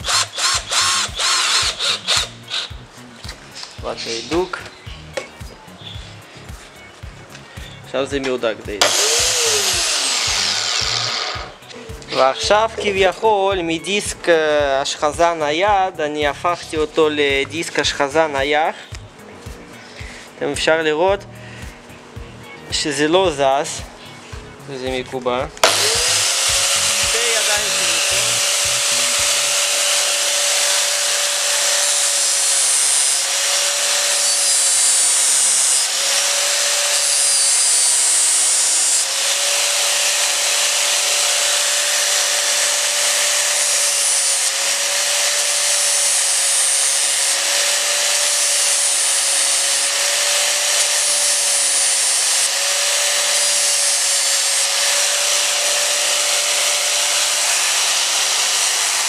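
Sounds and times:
grinder motor whining: 0.0s - 2.8s, 8.8s - 13.0s, 25.6s - 59.0s
metal grinding hiss: 0.0s - 5.1s, 8.8s - 14.5s, 25.6s - 59.0s.

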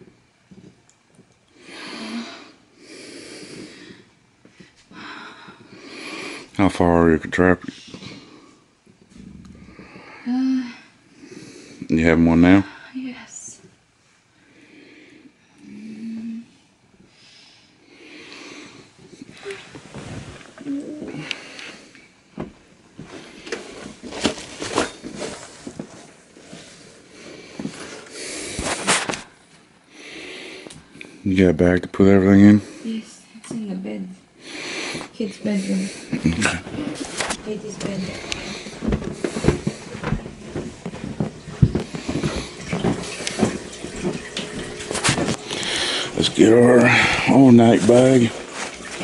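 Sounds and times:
footsteps in a house: 0.0s - 1.5s, 3.5s - 5.9s, 18.7s - 29.7s, 36.1s - 49.0s.

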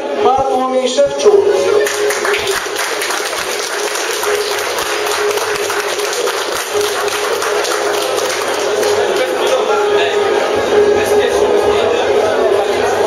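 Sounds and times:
background music steady note: 0.0s - 13.0s
audience applauding: 1.8s - 9.7s.

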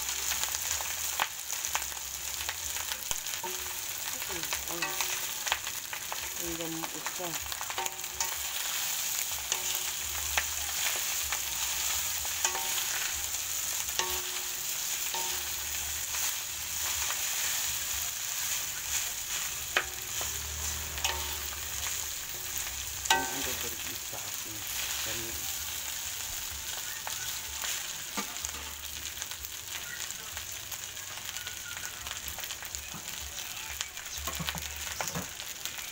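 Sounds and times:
rice sizzling in a wok: 0.0s - 35.9s
spatula scraping a wok: 7.0s - 29.0s
spatula knocking a pan: 11.6s - 13.1s, 23.0s - 23.5s.

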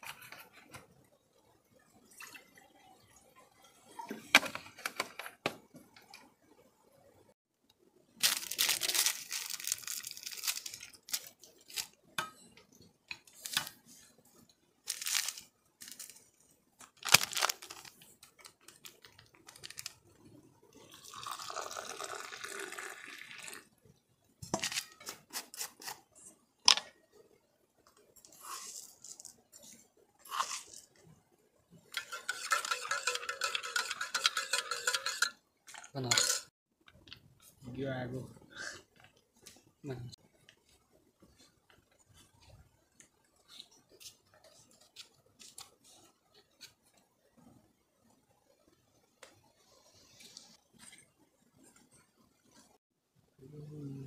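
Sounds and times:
plastic packet crinkling and tearing: 8.2s - 11.9s, 14.9s - 16.2s, 16.9s - 20.0s
liquid pouring: 20.8s - 23.7s
steel pots clinking: 31.9s - 36.5s.

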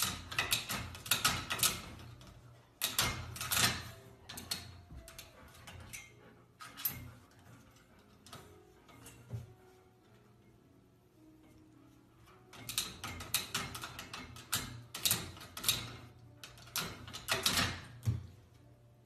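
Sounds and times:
baby gate latch clicking and rattling: 0.0s - 9.2s, 12.4s - 18.3s.

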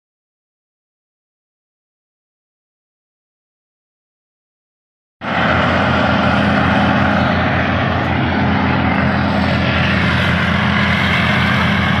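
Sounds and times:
chopper rushing noise: 5.2s - 12.0s
harvester engine drone: 5.2s - 12.0s.

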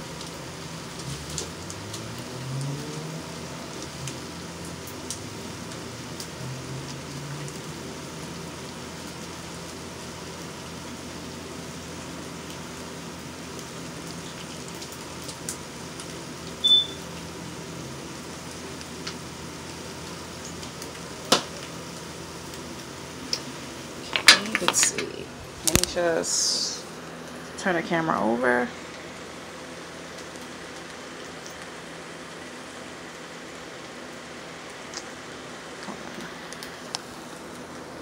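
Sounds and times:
kitchen appliance humming: 0.0s - 38.0s
short high beep: 16.6s - 17.0s.

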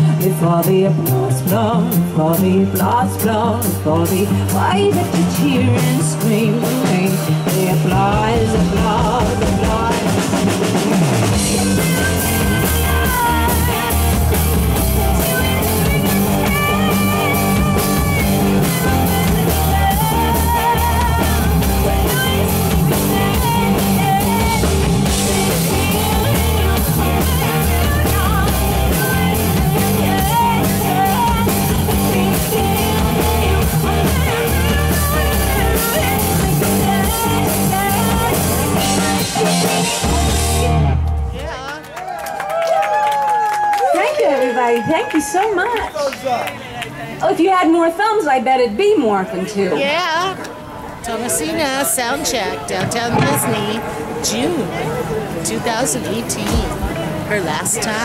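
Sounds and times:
woman singing into a microphone: 0.0s - 10.4s, 11.5s - 14.2s, 15.1s - 40.0s
bass guitar: 0.0s - 41.8s
drum kit: 0.0s - 41.8s, 51.2s - 58.0s.

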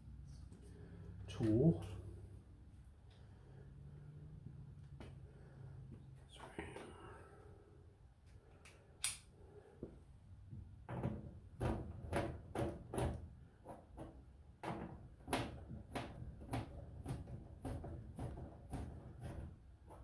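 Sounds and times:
sharp click: 8.6s - 9.3s.

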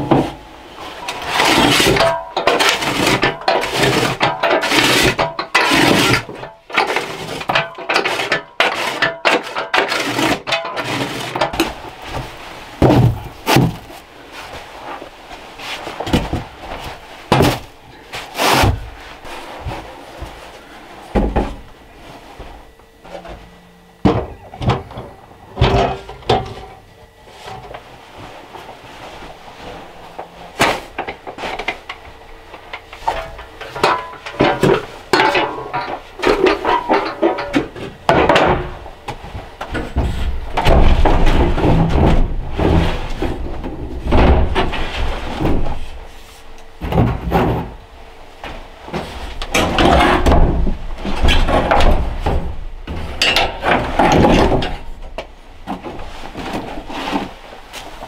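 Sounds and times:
objects knocking and thudding: 0.0s - 58.0s.

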